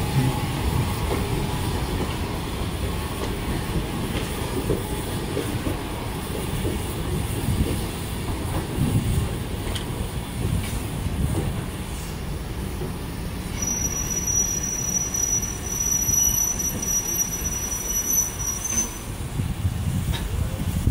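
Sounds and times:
railway coaches rumbling on track: 0.0 - 20.9
high-pitched wheel squeal: 13.5 - 19.1.

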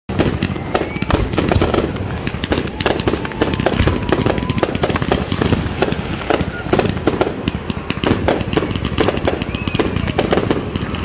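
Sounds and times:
fireworks bangs and crackles: 0.1 - 11.0
thin steady whistle: 0.5 - 1.4, 9.3 - 10.0.

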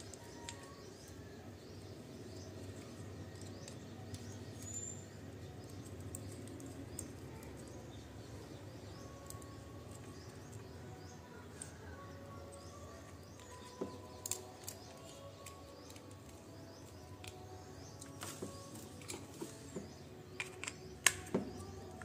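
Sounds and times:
birds chirping: 0.0 - 22.0
low background noise: 0.0 - 22.0.

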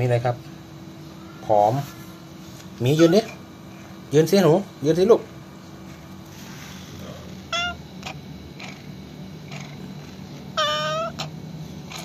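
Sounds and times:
cat meowing: 2.9 - 3.4, 7.5 - 7.8, 10.5 - 11.3.

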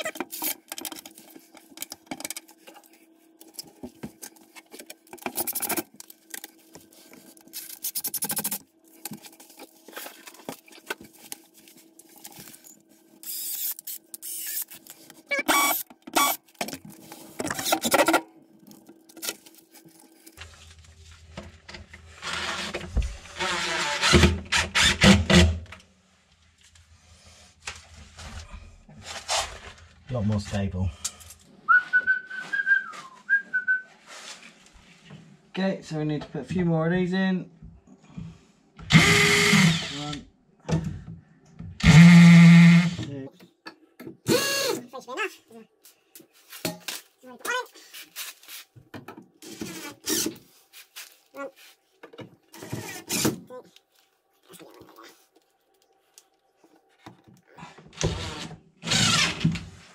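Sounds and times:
drill running: 13.2 - 14.7, 15.4 - 16.4, 38.9 - 40.1, 41.8 - 43.0, 44.3 - 44.8, 58.0 - 59.4.

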